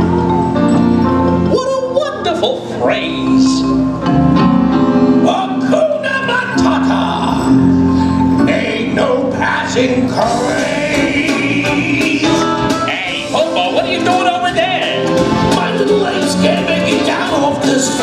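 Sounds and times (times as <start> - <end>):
person singing: 8.4 - 18.0
percussion beat: 10.3 - 18.0.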